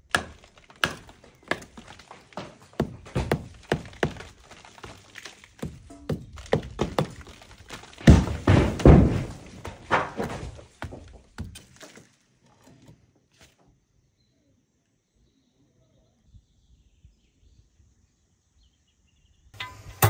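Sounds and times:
hammer striking chisel into brick: 0.0s - 4.3s.

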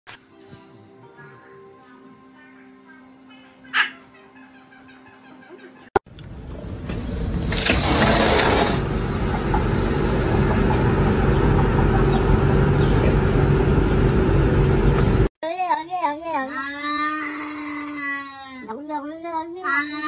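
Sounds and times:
engine-like running noise: 6.1s - 15.3s.

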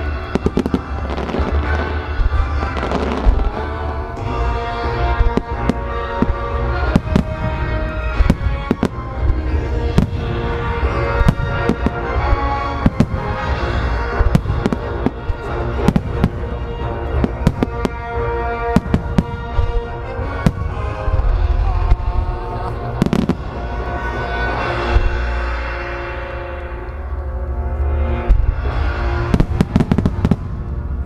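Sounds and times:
fireworks bangs: 0.0s - 25.6s, 28.2s - 31.0s
low rumble: 0.0s - 31.0s
music with held tones: 0.0s - 31.0s.

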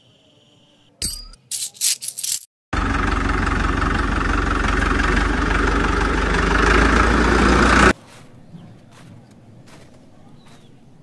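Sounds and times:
model tractor motor humming: 2.8s - 8.0s.

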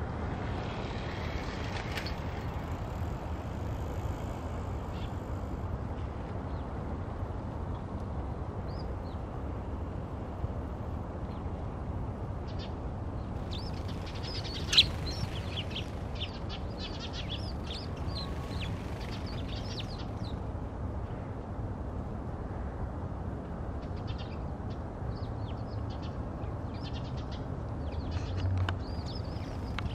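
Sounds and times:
steady low rumble: 0.0s - 22.2s
sparrows chirping: 12.5s - 20.4s, 23.9s - 29.9s.

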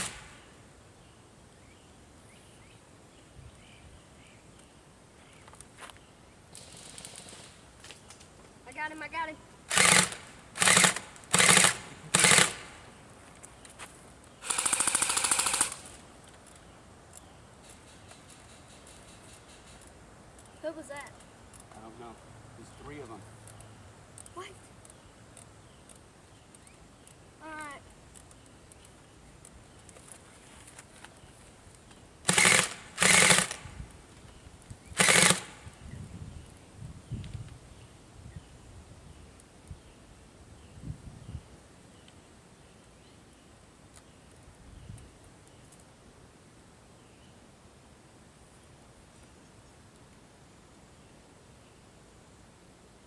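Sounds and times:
airsoft gun automatic fire: 0.0s - 0.4s, 9.7s - 12.8s, 14.4s - 15.9s, 32.3s - 33.7s, 35.0s - 35.6s.

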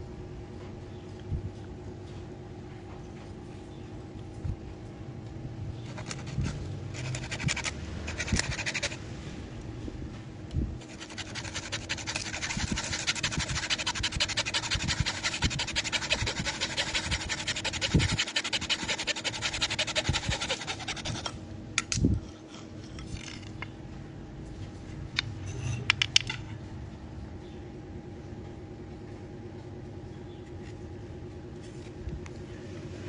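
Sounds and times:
hacksaw sawing bamboo: 7.0s - 9.0s, 10.8s - 21.3s.

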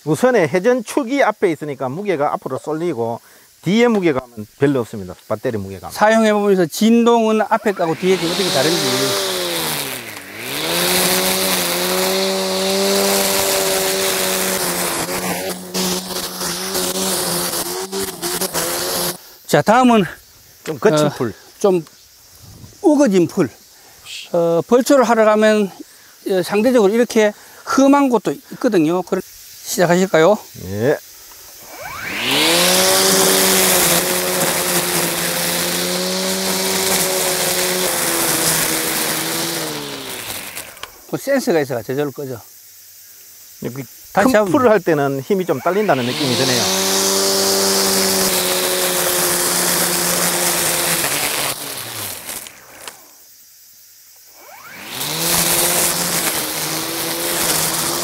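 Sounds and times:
string trimmer motor hum: 7.3s - 19.3s, 31.5s - 41.4s, 44.2s - 44.8s, 45.4s - 53.2s, 54.3s - 58.0s
trimmer line slapping through grass: 7.6s - 19.2s, 31.7s - 41.0s, 46.0s - 53.1s, 54.8s - 58.0s.

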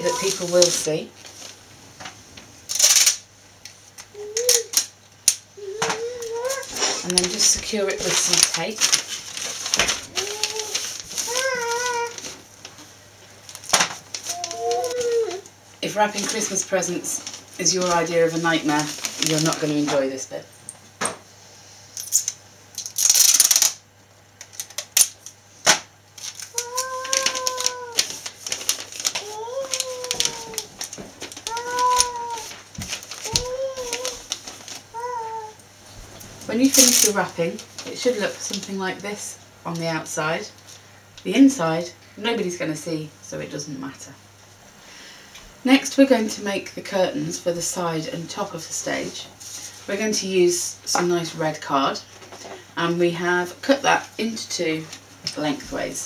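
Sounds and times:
wrapping paper rustling: 0.0s - 20.2s, 22.0s - 23.8s, 24.4s - 39.0s.

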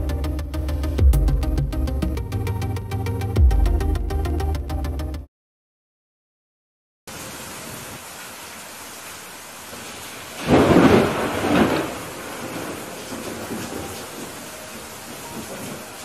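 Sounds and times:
steady rain hiss: 7.1s - 16.0s
thunder rolling: 10.4s - 16.0s.

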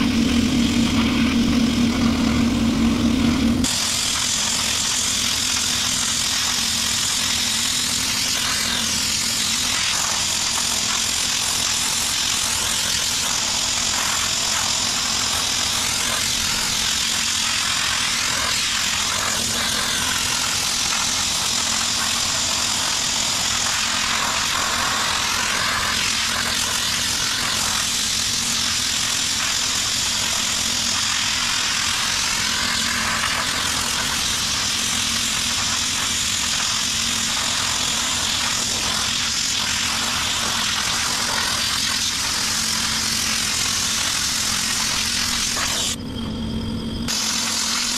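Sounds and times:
low hum: 0.0s - 4.6s, 45.1s - 47.9s
sandblaster hissing: 0.0s - 47.9s.

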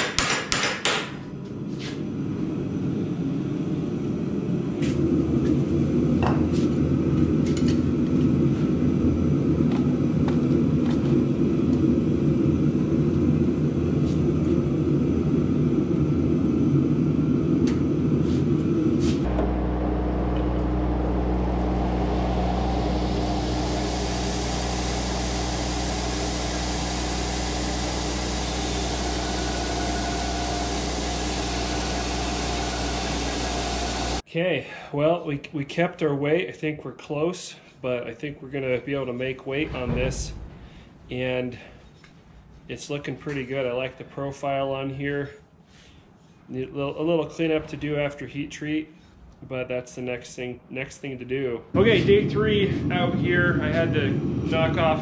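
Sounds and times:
low rumbling noise: 2.1s - 34.2s, 39.4s - 42.6s, 51.7s - 55.0s
belt grinder humming: 19.3s - 34.2s
steel grinding hiss: 22.3s - 34.2s.

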